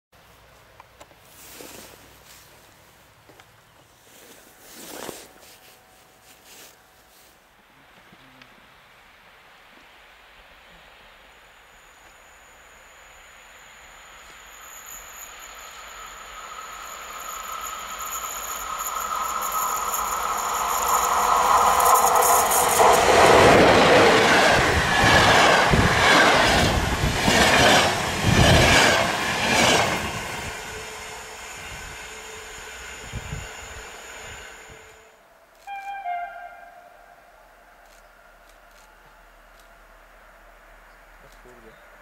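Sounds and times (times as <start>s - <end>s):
train rushing past: 8.7s - 39.4s
rhythmic wheel clatter: 13.8s - 23.8s.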